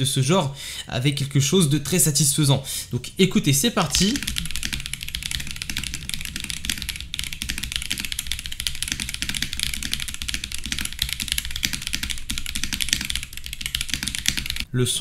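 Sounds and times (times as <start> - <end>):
mechanical keyboard typing: 3.9 - 14.7.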